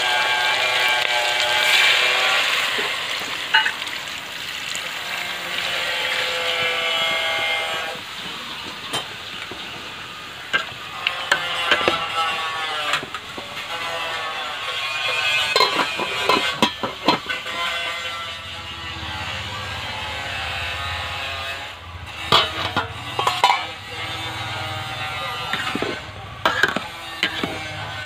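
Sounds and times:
water poured into hot pot: 0.0s - 18.2s
fish frying in pot: 0.0s - 28.0s.

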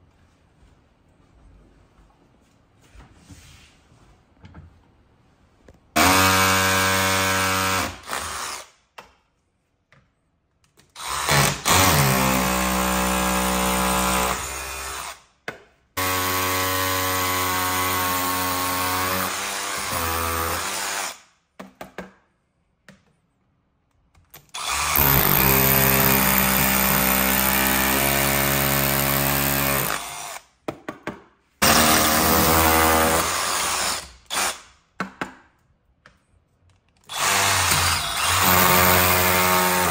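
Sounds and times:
power drill running: 24.6s - 30.4s, 37.1s - 39.9s.

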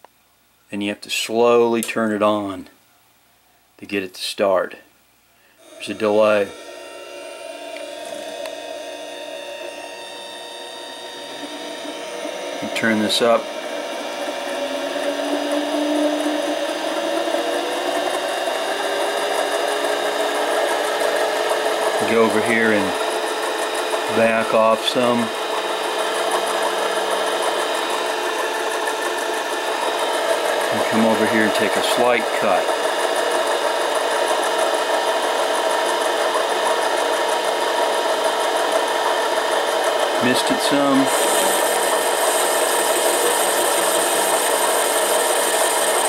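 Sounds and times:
lathe motor whine: 5.6s - 46.0s.

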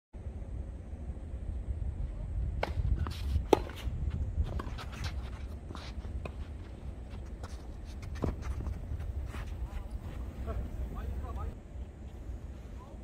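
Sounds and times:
steady low rumble: 0.2s - 13.0s
tennis balls struck with rackets: 2.6s - 3.9s
shoes scuffing on court: 2.6s - 10.8s.

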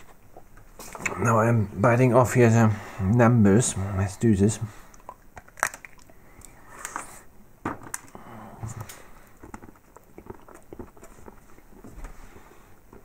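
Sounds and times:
chocolate snapping and crunching: 4.9s - 7.1s, 7.9s - 11.4s.

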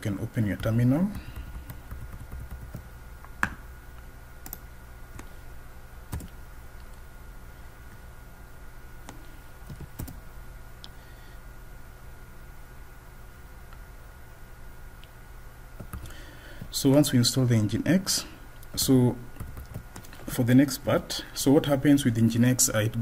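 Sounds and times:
low steady hum: 0.0s - 23.0s
computer keyboard keystrokes: 1.3s - 2.9s, 6.1s - 6.4s, 9.1s - 10.2s, 19.4s - 20.0s.

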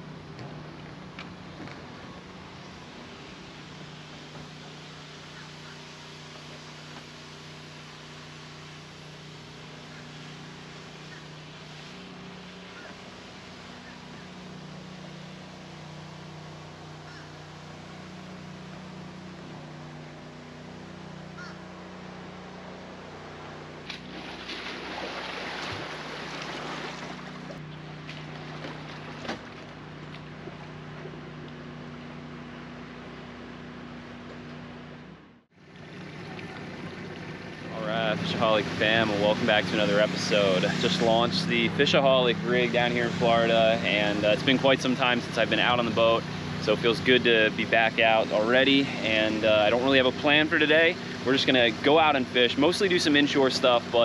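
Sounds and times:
vehicle engine humming: 0.0s - 54.0s
water sloshing and splashing: 23.6s - 31.6s, 35.6s - 41.2s.

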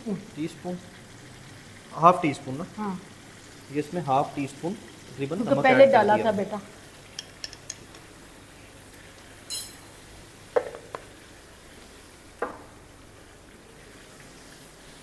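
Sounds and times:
faint sizzle from pan: 0.0s - 15.0s
metal spoon clinking in pan: 9.5s - 9.9s.

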